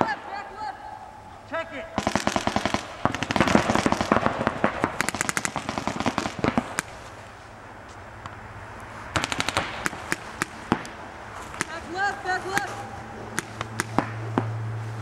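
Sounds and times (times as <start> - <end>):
paintball markers firing: 2.0 - 7.1, 9.2 - 11.9, 12.5 - 14.6.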